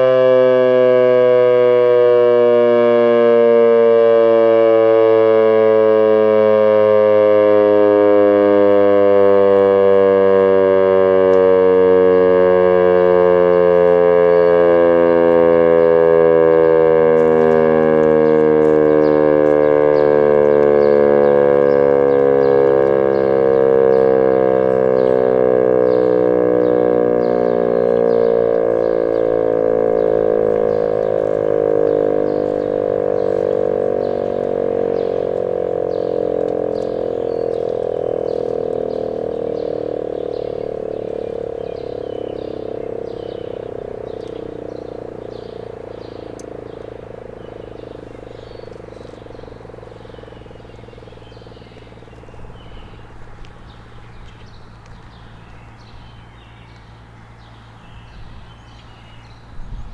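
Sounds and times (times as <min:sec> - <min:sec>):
warning siren winding down: 0:00.0 - 0:59.9
frogs calling: 0:16.6 - 0:59.9.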